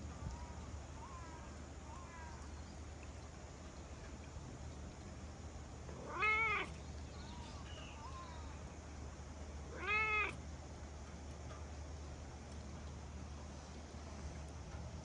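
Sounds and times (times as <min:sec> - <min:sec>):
cat meowing: 0:06.0 - 0:06.8, 0:09.7 - 0:10.4.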